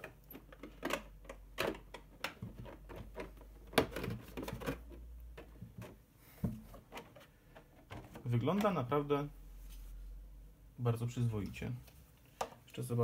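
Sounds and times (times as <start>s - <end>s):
plastic shell clicking and knocking: 0.0s - 8.8s.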